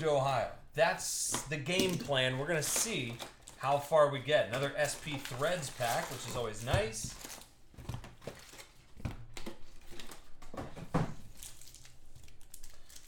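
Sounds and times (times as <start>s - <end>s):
foil wrappers crinkling: 1.7s - 10.4s, 11.2s - 13.0s.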